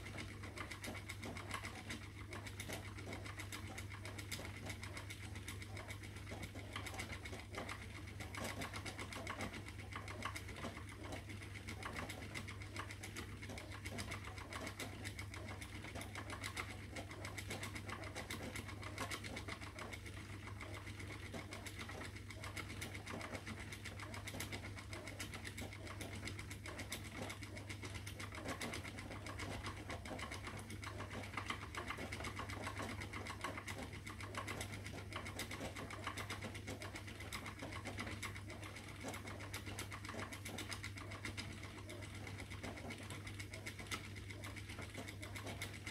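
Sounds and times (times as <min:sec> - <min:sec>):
spinning wheel humming: 0:00.0 - 0:45.9.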